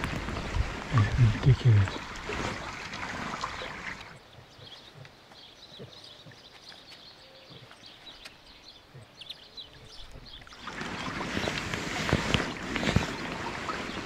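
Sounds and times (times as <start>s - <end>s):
shallow stream water rushing: 0.0s - 4.3s, 10.3s - 14.0s.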